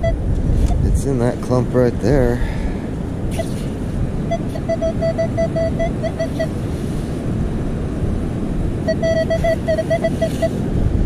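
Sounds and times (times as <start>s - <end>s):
surf rumble: 0.0s - 11.0s
wind: 0.0s - 11.0s
metal detector beeping rapidly: 4.3s - 6.6s, 8.9s - 10.6s.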